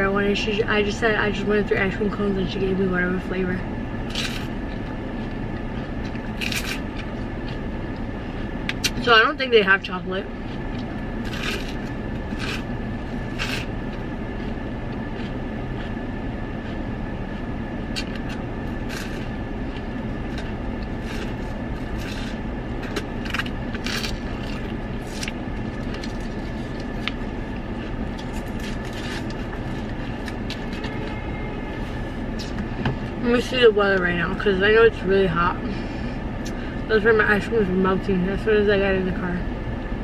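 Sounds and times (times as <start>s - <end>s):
car engine running: 0.0s - 40.0s
person licking and smacking ice cream: 10.4s - 31.0s.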